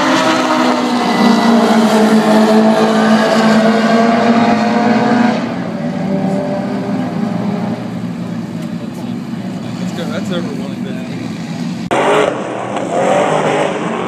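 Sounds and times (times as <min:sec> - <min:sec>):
car engines revving high: 0:00.0 - 0:14.0.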